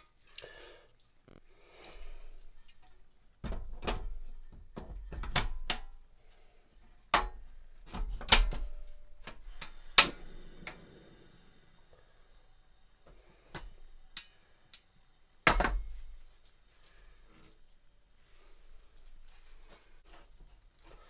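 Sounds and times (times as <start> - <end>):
gas hissing from burner: 9.2 - 15.4.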